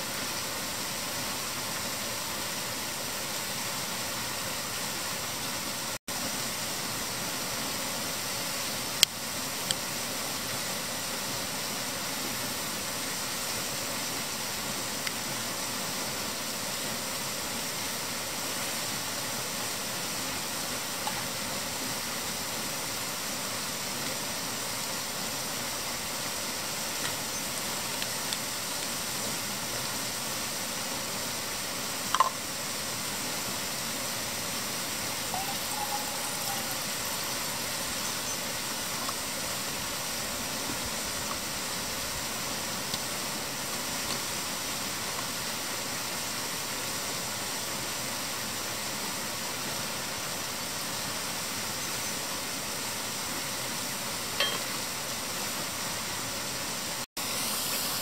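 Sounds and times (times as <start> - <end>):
river water rushing: 0.0 - 58.0
metal pot clinking on stove: 54.4 - 54.7.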